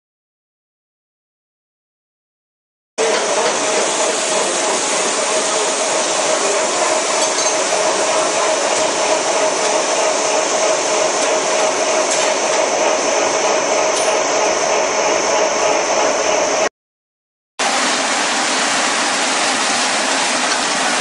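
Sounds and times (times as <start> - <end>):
machine humming: 3.0 - 16.7.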